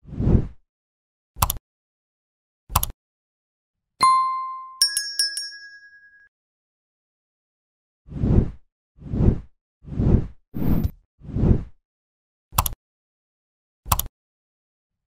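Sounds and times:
short clicks: 1.4s - 1.6s, 2.7s - 3.0s, 12.5s - 12.8s, 13.9s - 14.1s
bright ding: 4.0s - 6.3s
tinkling bell strikes: 4.0s - 6.3s.

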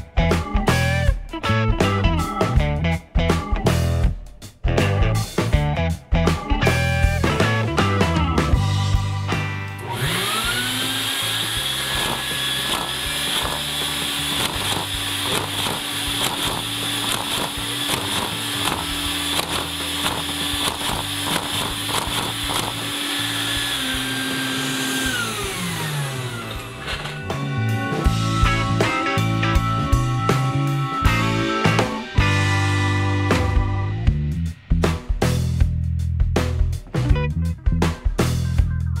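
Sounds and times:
vacuum cleaner motor whining: 9.8s - 28.4s
toy engine clicking rhythmically: 11.8s - 23.1s.

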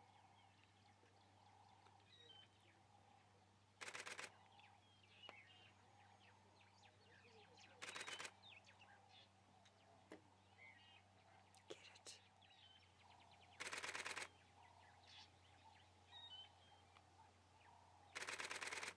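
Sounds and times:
faint bird chirps: 0.0s - 18.9s
burst of rapid clicks: 13.6s - 14.3s, 18.2s - 18.9s.

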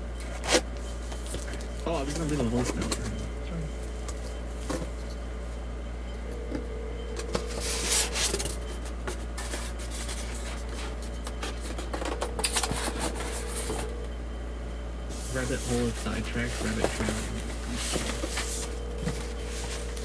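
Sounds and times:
steady low hum: 0.0s - 20.0s
cardboard and packing rustling: 0.2s - 3.2s, 7.1s - 14.0s, 15.2s - 20.0s.

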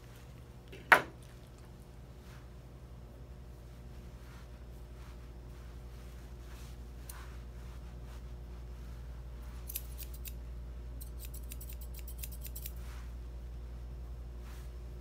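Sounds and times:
shears snipping fur: 4.2s - 8.2s, 9.4s - 10.4s, 11.0s - 13.1s.

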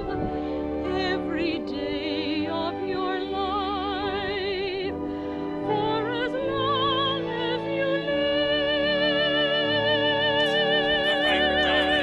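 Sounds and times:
sustained accompaniment: 0.0s - 12.0s
operatic voice singing: 6.4s - 12.0s.

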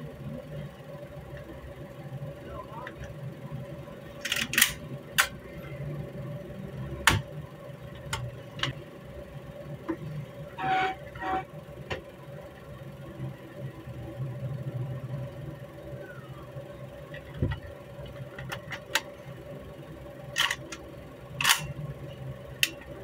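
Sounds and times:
low hum: 0.0s - 23.0s
metal clicks and clacks: 21.4s - 21.7s.

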